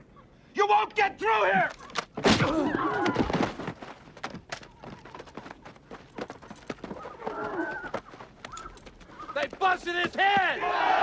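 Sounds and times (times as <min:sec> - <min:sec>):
man yelling: 0:00.6 - 0:01.7, 0:09.6 - 0:11.0
horse hooves clopping: 0:01.6 - 0:10.8.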